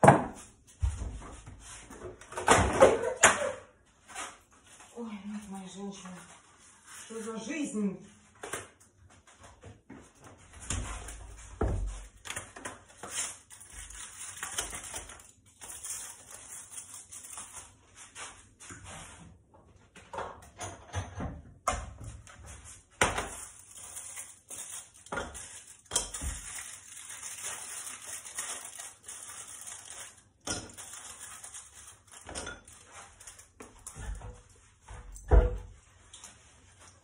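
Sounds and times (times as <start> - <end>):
foil wrapper crinkling: 12.1 - 18.2, 23.2 - 33.9.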